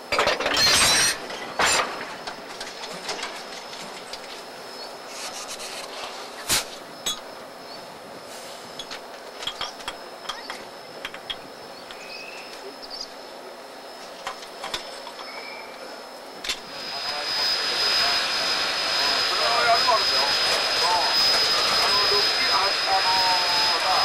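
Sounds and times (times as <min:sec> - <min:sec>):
faint high whine: 0:00.1 - 0:24.0.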